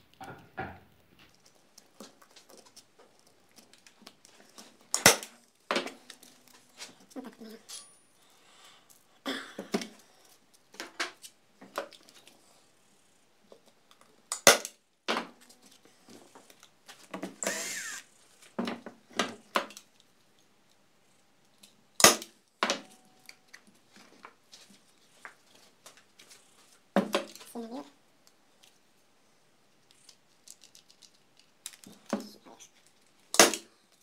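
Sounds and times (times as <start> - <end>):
cordless driver running: 17.4 - 18.0.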